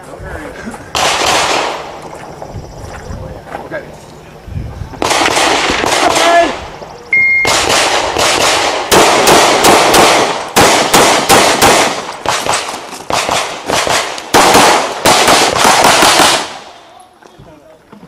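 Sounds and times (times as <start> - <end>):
pistol shots: 0.9 - 1.9, 5.0 - 6.6, 7.4 - 16.8.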